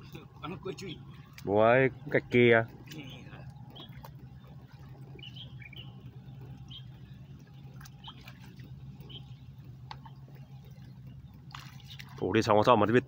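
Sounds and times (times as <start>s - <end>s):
small birds chirping: 0.0s - 13.0s
steady low hum: 0.0s - 13.0s
water clicks and drips: 6.2s - 9.1s, 9.8s - 12.4s.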